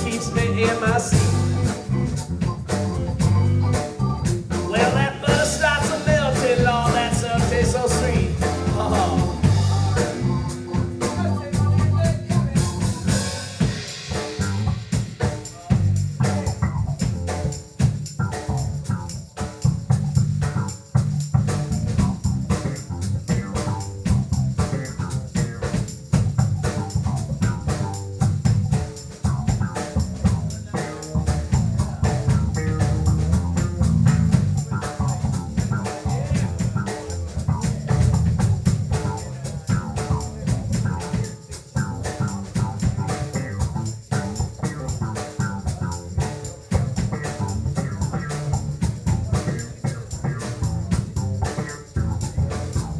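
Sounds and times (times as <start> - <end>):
electric guitar: 0.0 - 15.4
drum kit beat: 0.0 - 52.9
electric bass line: 0.0 - 52.9.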